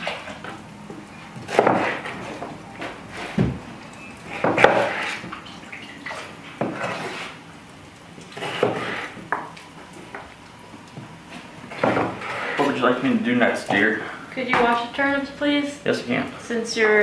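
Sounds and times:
knife chopping on cutting board: 1.5s - 2.1s, 4.4s - 5.2s
pots and pans clattering: 8.3s - 9.6s, 11.7s - 12.9s.

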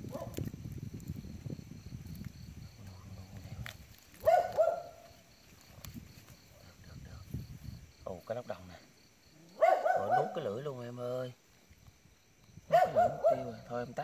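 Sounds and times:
wet plants rustling and crackling: 0.0s - 9.3s, 10.3s - 14.0s
dog barking: 0.1s - 0.4s, 4.2s - 5.0s, 9.5s - 10.5s, 12.7s - 13.6s.

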